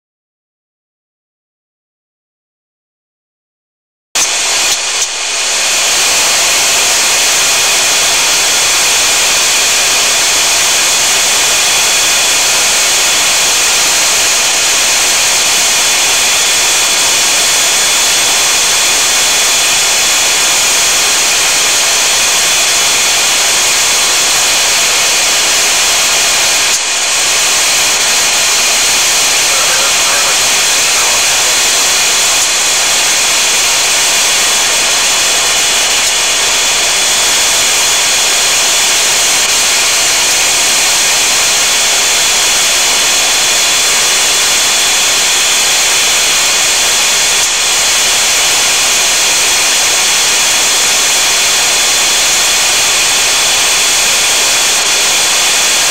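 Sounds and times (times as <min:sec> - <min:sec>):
turboprop engines droning: 0:04.2 - 0:43.6.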